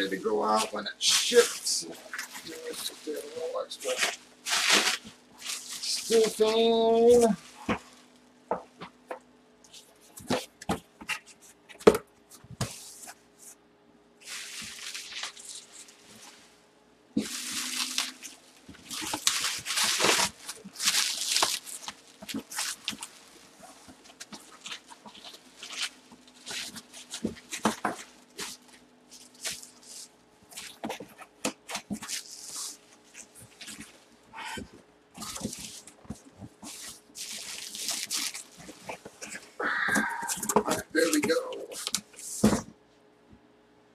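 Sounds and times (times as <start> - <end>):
bubble wrap crackling: 0.0 - 8.2, 14.2 - 16.5, 17.2 - 34.3, 35.2 - 42.6
bubble wrap rustling: 0.0 - 8.9, 14.2 - 16.6, 17.2 - 34.3, 35.2 - 42.7.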